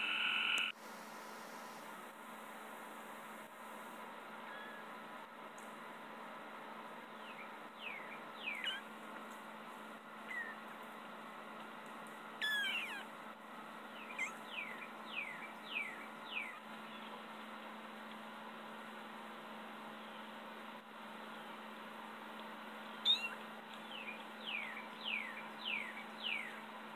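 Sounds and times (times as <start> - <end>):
steady low hum: 0.0 - 26.9
kittens mewing: 12.4 - 13.1.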